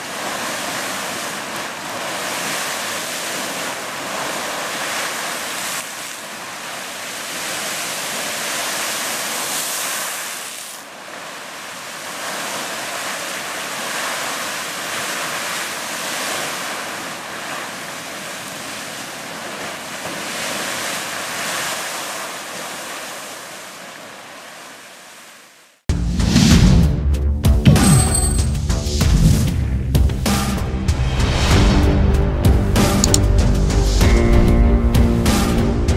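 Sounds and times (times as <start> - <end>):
geyser splashing water and steam: 0.0 - 25.2.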